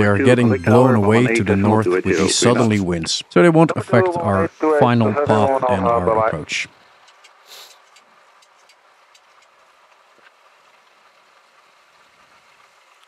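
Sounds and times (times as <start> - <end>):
cockpit air hiss: 0.0 - 9.3
faint ticks: 7.0 - 11.7.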